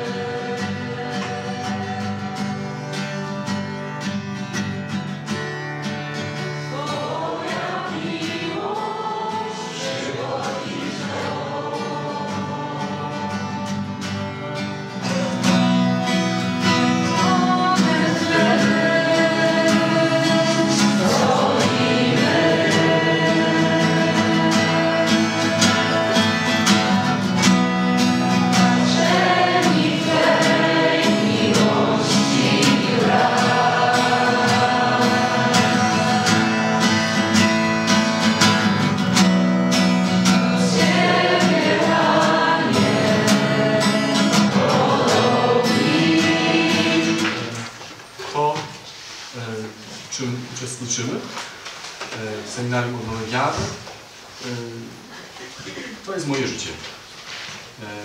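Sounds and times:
group singing worship song: 0.0 - 3.4, 6.3 - 39.1, 39.7 - 47.8
acoustic guitar: 0.0 - 58.0.

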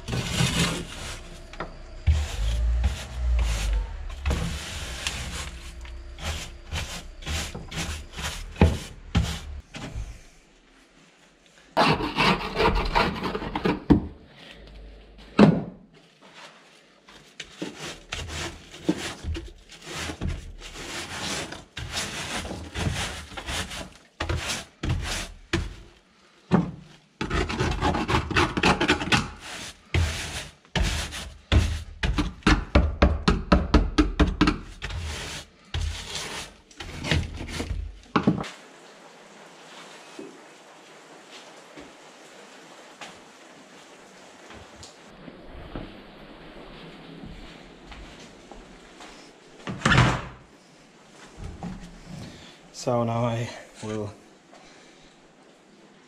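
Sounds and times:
gritty scraping of rust on metal: 0.0 - 10.0, 11.8 - 13.9, 17.2 - 25.8, 27.2 - 32.8, 34.4 - 38.1.

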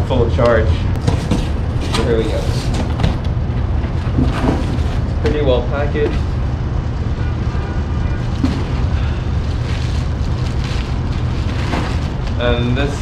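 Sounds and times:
steady low rumble: 0.0 - 13.0
plastic packaging rustling: 8.2 - 13.0.

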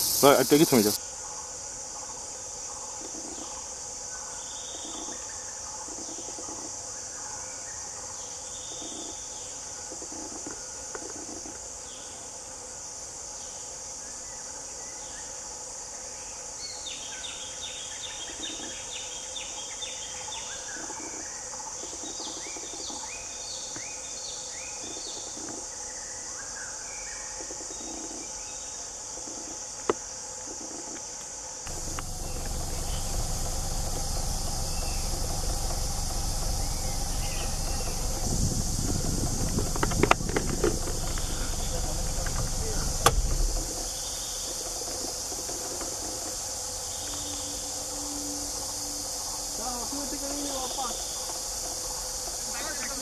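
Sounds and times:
birds calling and chirping: 0.0 - 1.0, 31.7 - 53.0
high insect drone: 0.0 - 53.0.

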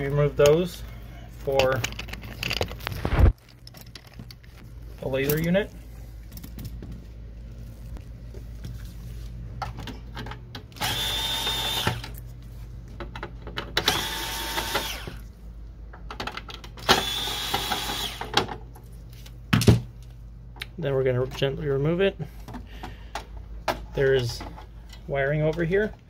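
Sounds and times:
cordless drill motor whine: 10.8 - 12.2, 13.8 - 15.2, 16.9 - 18.3.

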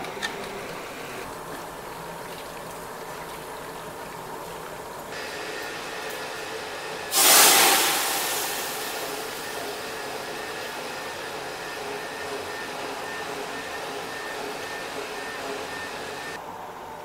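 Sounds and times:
liquid pouring into boiling water: 7.1 - 10.1.

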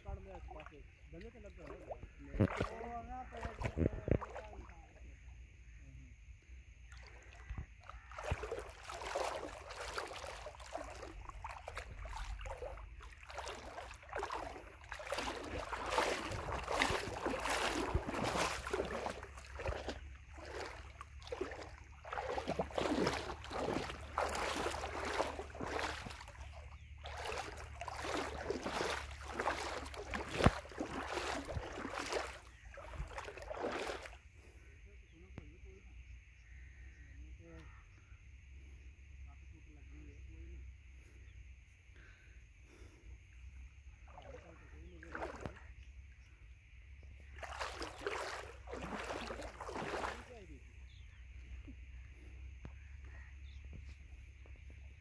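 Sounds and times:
river water splashing: 0.0 - 5.1, 6.8 - 34.3, 43.9 - 46.2, 47.0 - 52.3.

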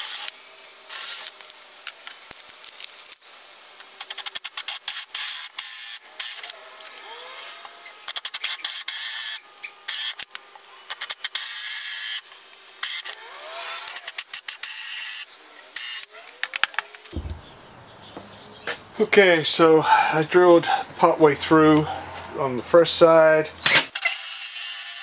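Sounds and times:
drill with hole saw cutting plywood: 0.0 - 1.8, 4.0 - 16.1, 23.7 - 25.0.

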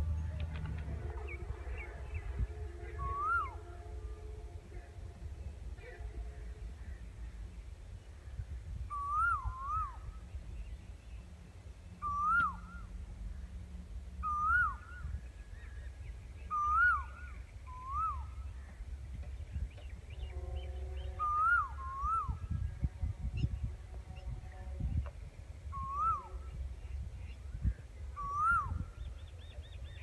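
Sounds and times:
low background rumble: 0.0 - 30.0
bird whistled calls: 2.9 - 3.6, 8.9 - 10.3, 12.0 - 12.9, 14.2 - 18.5, 19.8 - 22.6, 25.7 - 26.6, 28.2 - 30.0.

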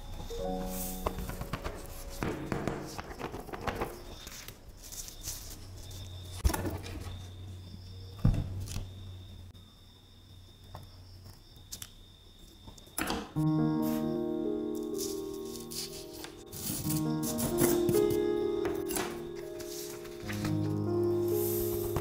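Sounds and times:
sticker paper rustling: 0.2 - 6.1, 14.9 - 22.0
sharp knocks: 1.1 - 3.9.

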